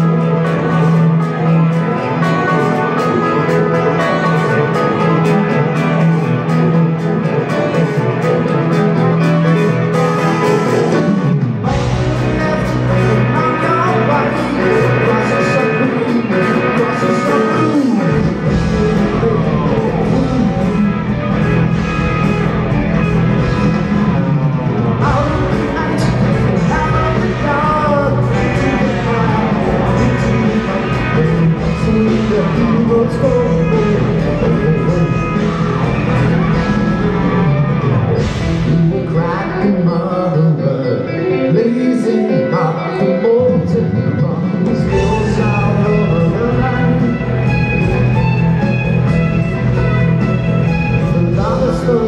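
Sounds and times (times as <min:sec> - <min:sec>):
rock band playing: 0:00.0 - 0:52.0
lead vocal singing: 0:10.6 - 0:21.8, 0:24.8 - 0:37.6, 0:38.2 - 0:48.3, 0:50.9 - 0:52.0
deep bass: 0:18.1 - 0:40.4, 0:44.6 - 0:52.0.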